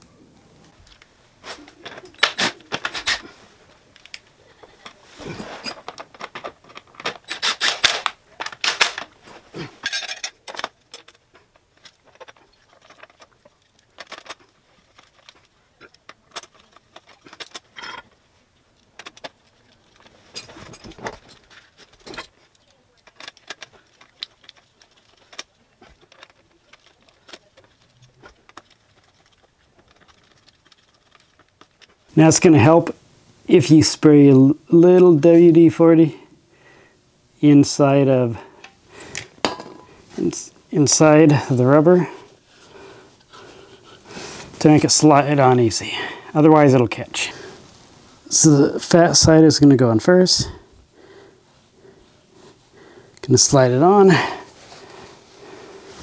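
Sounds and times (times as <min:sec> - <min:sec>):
metal tools clicking and rattling: 0:04.0 - 0:18.2, 0:18.8 - 0:32.0.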